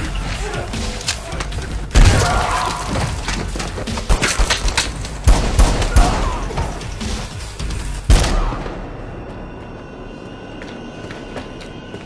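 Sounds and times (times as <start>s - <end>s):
gunshots: 4.1s - 6.5s.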